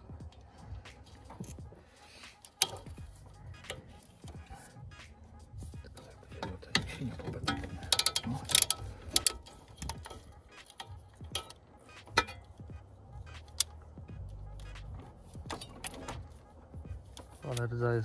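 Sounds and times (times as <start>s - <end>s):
ratchet wrench clicking: 2.3s - 4.4s, 7.5s - 12.6s
metal tools clinking: 5.9s - 12.6s.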